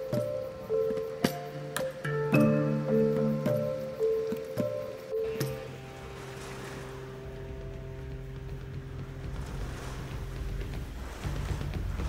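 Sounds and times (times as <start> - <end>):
background music: 0.0 - 12.0
storm wind and rain: 0.0 - 12.0
steady drumbeat: 7.3 - 12.0.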